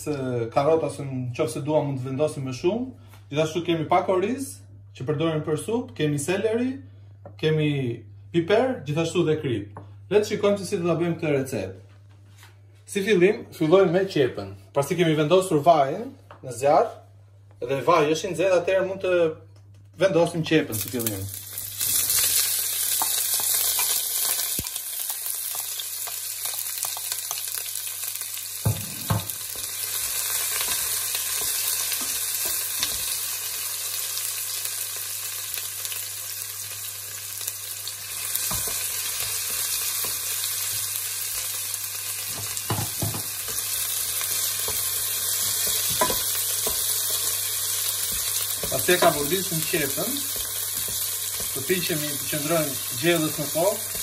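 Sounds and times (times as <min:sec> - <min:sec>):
onion sizzling in oil: 0:20.7 - 0:54.0
wooden spoon knocking on pot: 0:28.6 - 0:29.4, 0:42.3 - 0:43.4.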